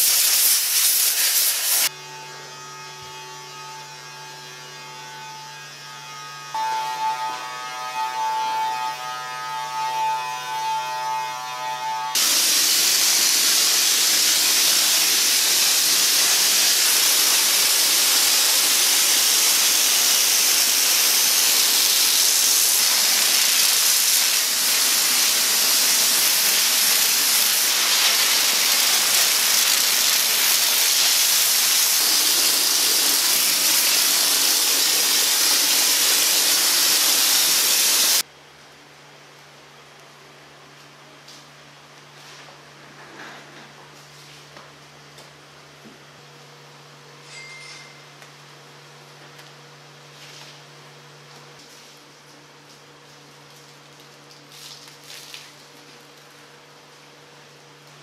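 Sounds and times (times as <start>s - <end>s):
steam lance hissing: 0.0s - 1.9s, 12.2s - 38.2s
whining hum: 1.9s - 12.4s.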